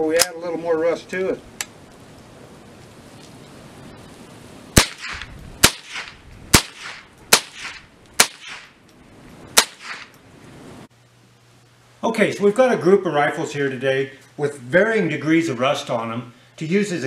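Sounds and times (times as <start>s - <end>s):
rifle shots with echo: 4.8s - 8.8s, 9.6s - 10.1s.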